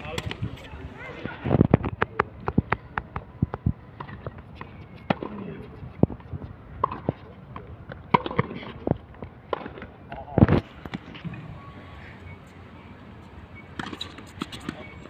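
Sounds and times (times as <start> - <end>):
faint voices: 0.0 - 7.6, 10.1 - 13.6
ball bouncing: 1.9 - 10.2, 13.8 - 15.0
racquets hitting tennis ball: 1.9 - 11.2, 13.7 - 15.0.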